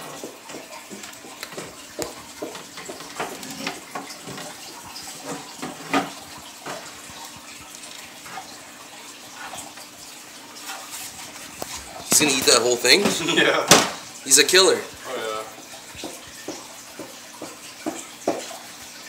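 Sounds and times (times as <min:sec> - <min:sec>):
water trickling and splashing: 0:00.0 - 0:19.0.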